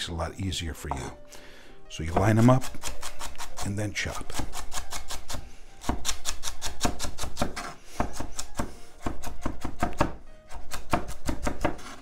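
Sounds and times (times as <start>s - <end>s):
knife chopping on wooden board: 2.1s - 3.6s, 4.3s - 12.0s.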